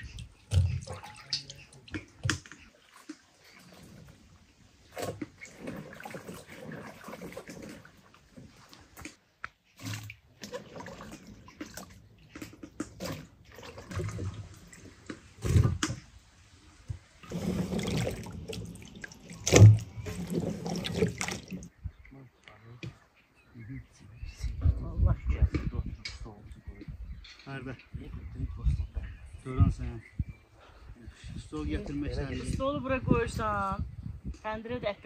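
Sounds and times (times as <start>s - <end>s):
water splashing and trickling: 0.0s - 23.7s.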